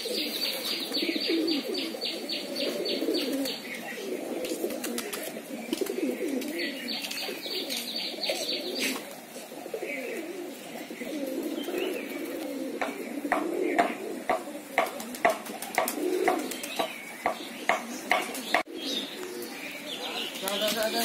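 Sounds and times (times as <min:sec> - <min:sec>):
pigeons cooing: 0:00.0 - 0:21.0
wings fluttering: 0:04.3 - 0:09.3, 0:11.1 - 0:17.0
sharp taps: 0:12.8 - 0:18.7.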